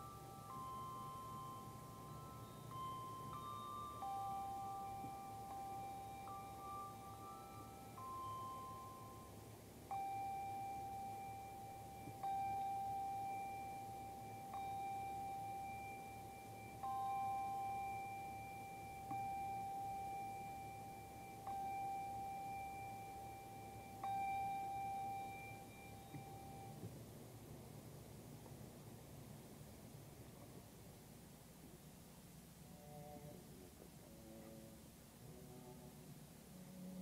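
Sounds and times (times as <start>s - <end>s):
handbells ringing: 0.0s - 26.8s.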